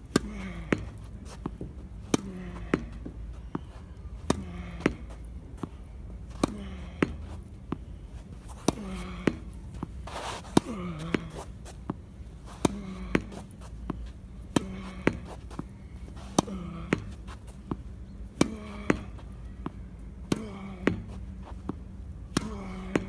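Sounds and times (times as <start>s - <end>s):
racket hitting tennis ball: 0.1s - 7.8s, 8.4s - 23.0s.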